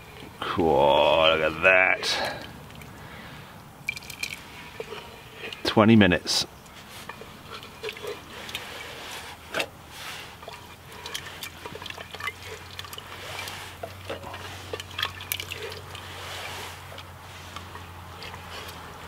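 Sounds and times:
spoon squelching through stew: 3.8 - 19.0.

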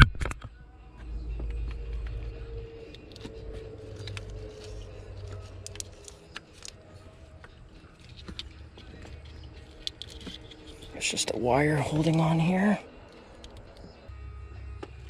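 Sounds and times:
faint wavering hum: 0.4 - 15.0
low rumble: 0.6 - 6.0
hoses clicking and rubbing: 1.4 - 14.0.

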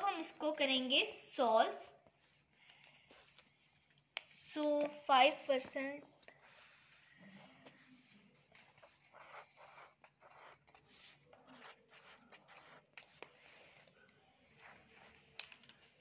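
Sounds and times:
pencil scratching on paper: 6.3 - 15.4.

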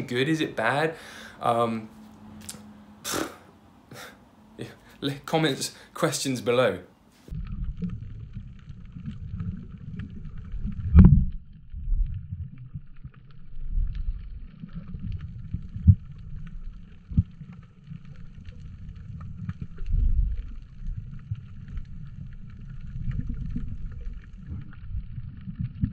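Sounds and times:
underwater rumble of moving water: 7.3 - 25.9.

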